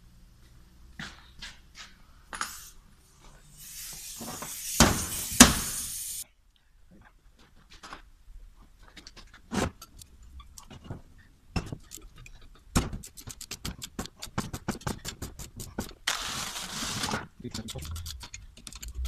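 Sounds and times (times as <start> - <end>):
ratcheting wrench clicking: 17.5 - 19.0.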